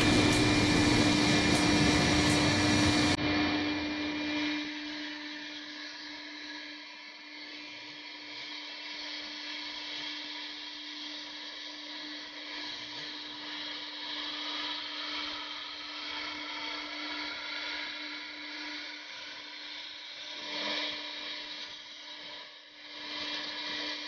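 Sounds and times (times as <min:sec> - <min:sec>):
hiss of cutting: 0:00.0 - 0:03.2
router spindle tone: 0:00.0 - 0:12.2.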